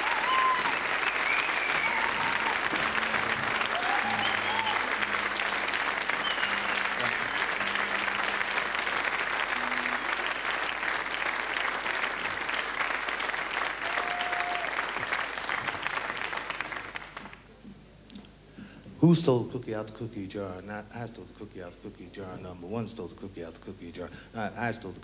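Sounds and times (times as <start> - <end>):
audience applauding: 0.0 - 17.5.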